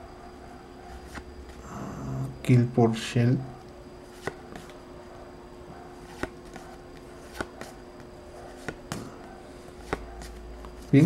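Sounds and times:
faint steady hum: 0.0s - 11.0s
cards flicked by hand: 4.2s - 4.8s, 6.0s - 11.0s.

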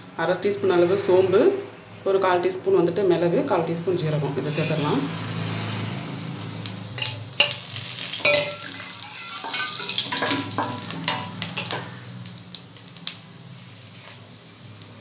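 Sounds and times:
seeds sizzling in hot oil: 6.4s - 15.0s.

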